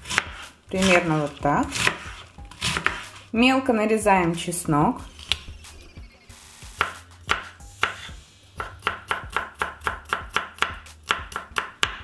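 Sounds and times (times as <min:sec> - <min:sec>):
knife chopping on cutting board: 0:00.0 - 0:03.2, 0:06.8 - 0:12.0.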